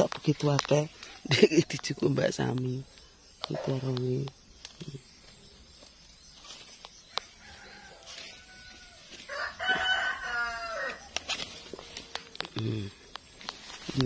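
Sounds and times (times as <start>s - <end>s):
rooster crowing: 7.1s - 12.2s.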